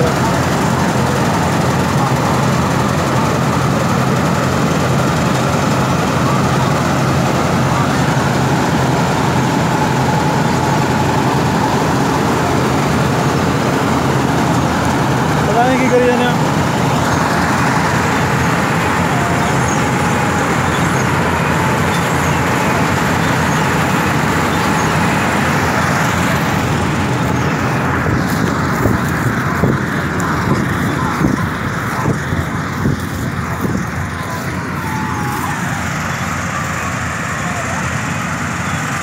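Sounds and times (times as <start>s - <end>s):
combine harvester engines running: 0.0s - 39.0s
rumbling microphone noise: 16.4s - 36.3s.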